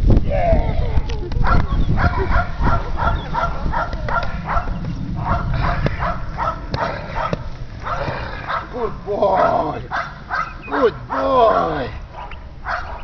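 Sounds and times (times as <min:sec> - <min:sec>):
puppy yapping: 0:09.4 - 0:13.0.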